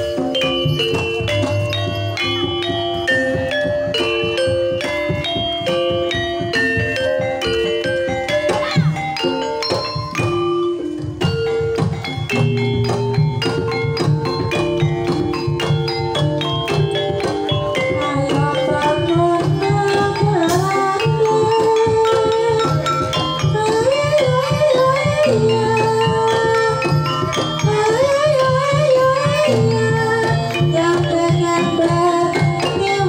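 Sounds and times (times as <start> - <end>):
hand drums: 0.0 - 33.0
wooden xylophone: 0.0 - 33.0.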